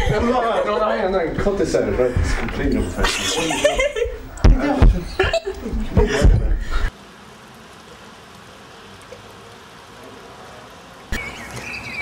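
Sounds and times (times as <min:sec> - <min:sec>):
man's voice: 0:00.0 - 0:05.2
steady background hiss: 0:00.0 - 0:12.0.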